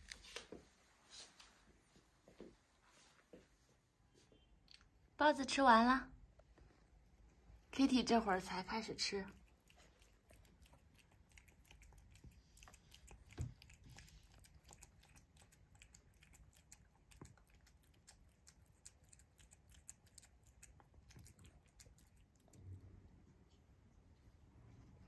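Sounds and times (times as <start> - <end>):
cat licking and chewing food: 6.2 - 25.0.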